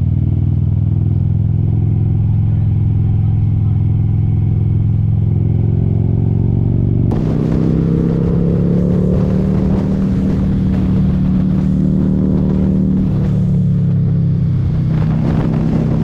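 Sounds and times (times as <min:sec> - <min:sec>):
motorcycle engine running: 0:00.0 - 0:16.0
rush of air noise: 0:07.1 - 0:16.0.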